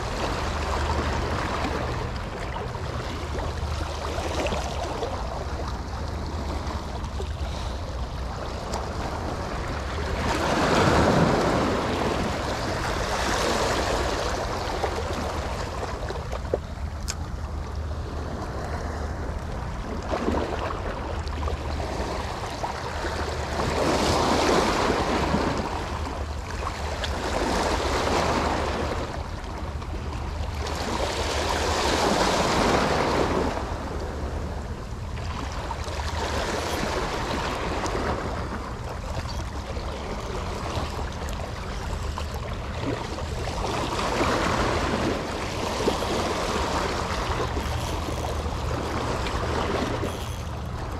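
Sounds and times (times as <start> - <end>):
wind rumble on microphone: 0.0 - 50.9
waves washing against rocks: 10.2 - 14.3.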